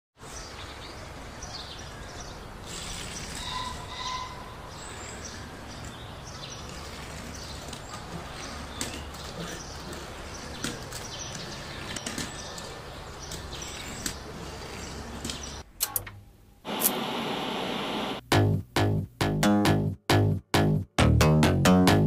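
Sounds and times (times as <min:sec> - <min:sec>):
background hiss: 0:13.6 - 0:18.3
tv static noise: 0:16.7 - 0:18.2.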